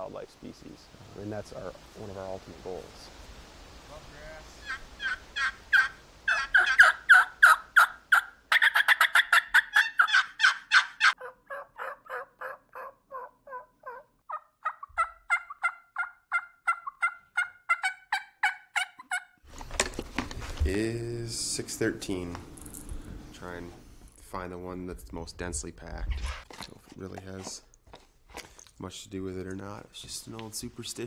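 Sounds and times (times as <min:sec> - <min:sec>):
turkey yelping: 0:04.6 - 0:19.4.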